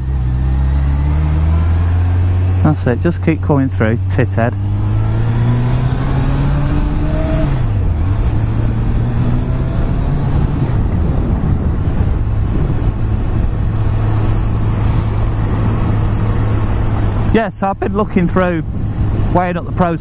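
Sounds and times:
wind and road noise: 0.0 - 20.0.

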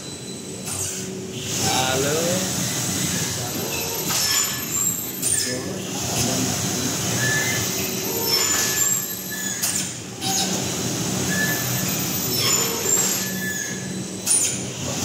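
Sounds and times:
machine humming: 0.0 - 15.0
short high squeaks: 7.2 - 10.6, 11.3 - 14.6.

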